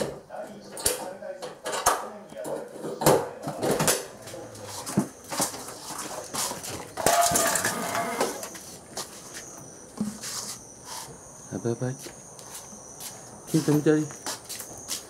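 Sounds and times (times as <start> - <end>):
handling noise: 2.4 - 11.2
high-pitched insect chorus: 7.0 - 15.0.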